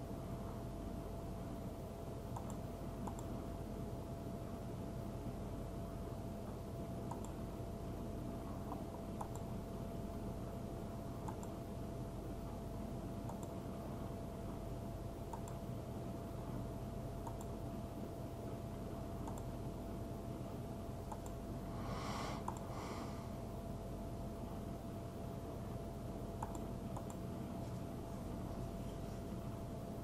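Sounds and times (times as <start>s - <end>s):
steady low hum: 0.0s - 30.0s
faint mouse-button clicks: 2.3s - 3.3s, 7.1s - 7.4s, 8.7s - 9.5s, 11.2s - 11.6s, 13.3s - 13.6s, 15.3s - 15.6s, 21.1s - 21.4s, 22.4s - 22.7s, 26.4s - 27.2s.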